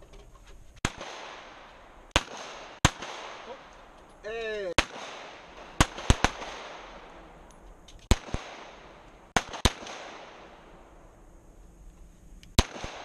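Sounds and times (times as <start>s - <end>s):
pistol shots with echo: 0.8s - 4.0s, 4.8s - 10.9s, 12.6s - 13.0s.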